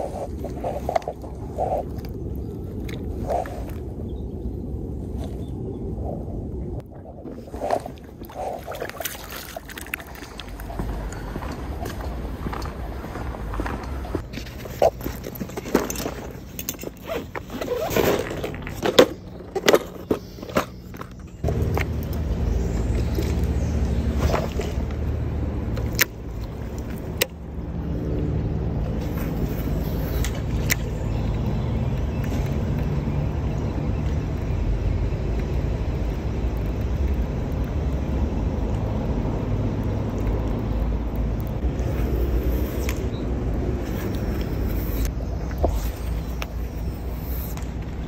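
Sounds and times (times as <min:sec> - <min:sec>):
low engine drone: 0:00.0 - 0:17.6, 0:18.2 - 0:48.0
handling clicks and knocks: 0:13.6 - 0:25.1.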